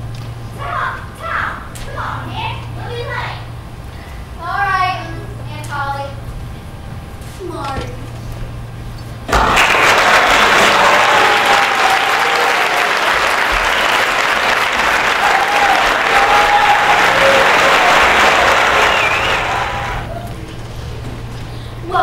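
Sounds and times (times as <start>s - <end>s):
audience applauding: 9.3s - 20.2s.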